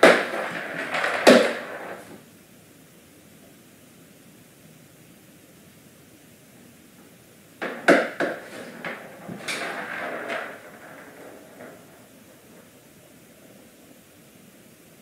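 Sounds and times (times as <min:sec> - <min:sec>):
ball knocking on vinyl floor: 0:00.0 - 0:02.2, 0:07.6 - 0:13.2
faint steady hiss: 0:00.0 - 0:15.0.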